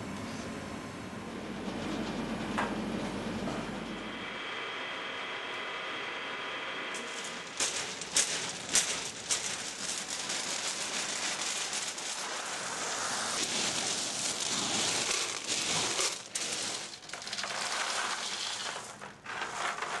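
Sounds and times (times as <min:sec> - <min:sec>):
candy machine running: 0:05.0 - 0:20.0
hard sweets clattering: 0:07.0 - 0:20.0.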